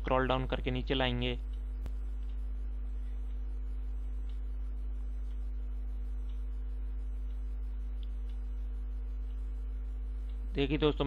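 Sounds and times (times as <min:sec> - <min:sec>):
electrical hum: 0:00.0 - 0:11.0
faint ticks: 0:01.5 - 0:10.6.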